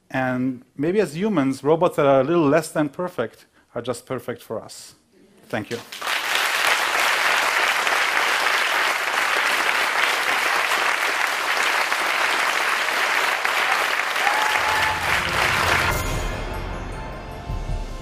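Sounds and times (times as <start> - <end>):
audience applauding: 5.7 - 16.3.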